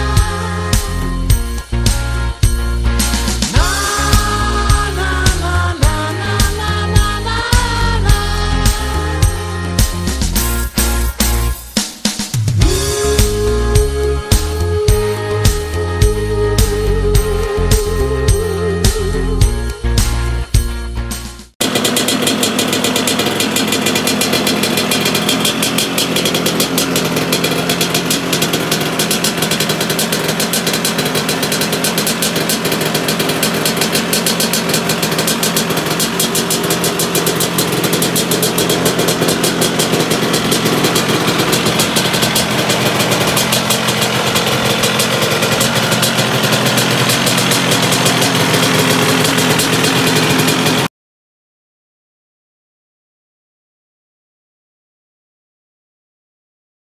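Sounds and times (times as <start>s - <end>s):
two-stroke scooter engine running: 0.0s - 19.6s, 21.6s - 50.9s.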